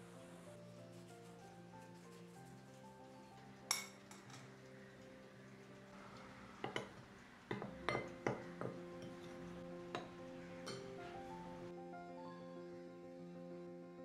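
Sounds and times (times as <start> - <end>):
soft background music: 0.0 - 14.0
spoon clinking against glass bowl: 6.6 - 9.3.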